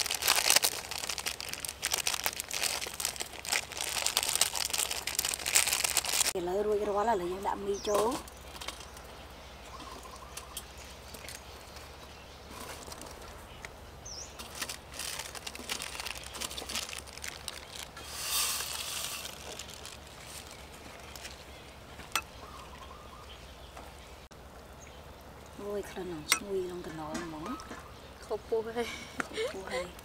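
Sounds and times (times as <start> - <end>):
faint bird chirp: 7.2 - 14.4, 20.3 - 25.2.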